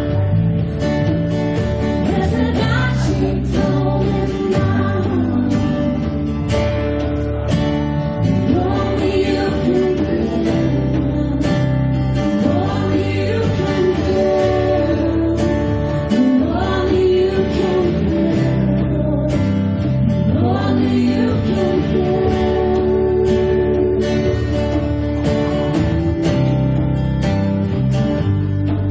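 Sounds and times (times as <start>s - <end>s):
drums: 0.0s - 28.9s
strummed acoustic guitar: 0.0s - 28.9s
person singing: 1.8s - 6.9s, 8.2s - 24.8s.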